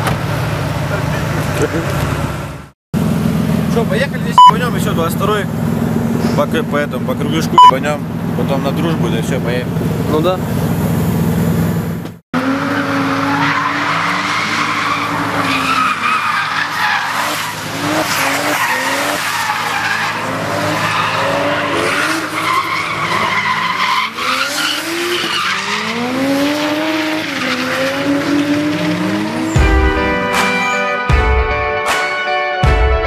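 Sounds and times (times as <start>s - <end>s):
car engine revving: 0.0s - 30.6s
tyres squealing: 13.1s - 26.4s.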